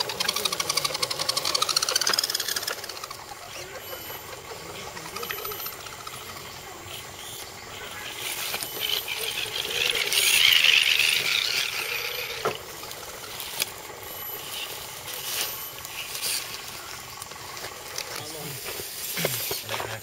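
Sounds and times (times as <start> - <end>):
toy truck motors and gears whining: 0.0 - 20.0.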